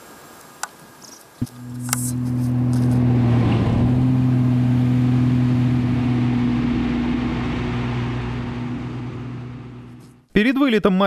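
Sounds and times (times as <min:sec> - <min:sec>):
plane propeller engine droning: 0:01.4 - 0:10.2.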